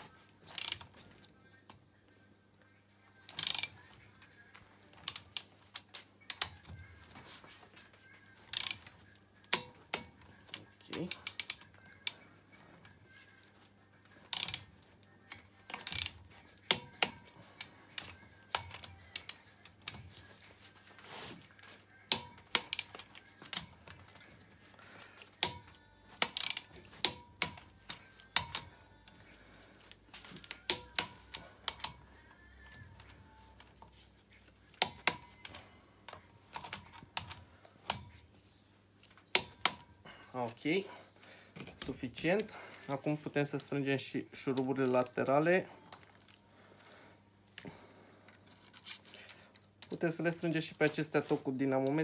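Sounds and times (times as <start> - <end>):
torque wrench ratchet clicking: 0.6 - 0.8, 3.4 - 3.7, 8.5 - 8.8, 11.1 - 12.2, 14.3 - 14.7, 15.8 - 17.1, 25.4 - 27.6.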